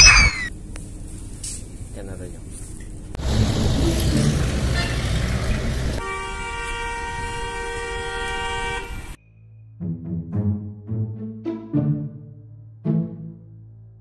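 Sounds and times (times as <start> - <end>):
loud road traffic: 3.2 - 9.2
vehicle horn long blast: 4.7 - 5.3, 6.0 - 9.2.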